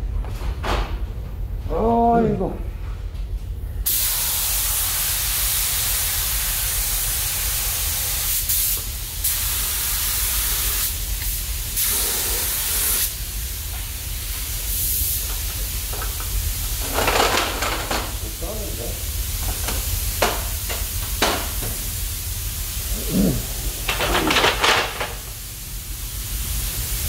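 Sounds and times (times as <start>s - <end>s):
paint spray gun hissing: 3.9s - 16.6s.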